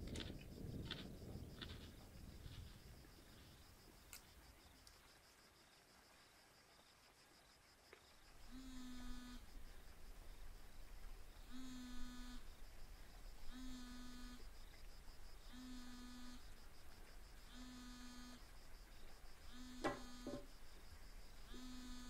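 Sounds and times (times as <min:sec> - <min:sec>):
smartphone buzzing on table: 0:08.5 - 0:09.5, 0:11.5 - 0:12.5, 0:13.5 - 0:14.4, 0:15.5 - 0:16.4, 0:17.5 - 0:18.4, 0:19.5 - 0:20.5, 0:21.5 - 0:22.0.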